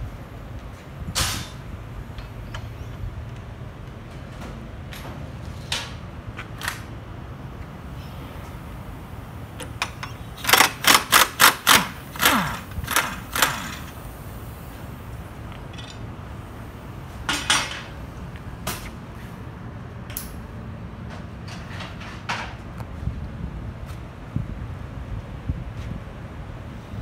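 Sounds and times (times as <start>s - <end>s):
impact driver rattling: 10.4s - 13.9s.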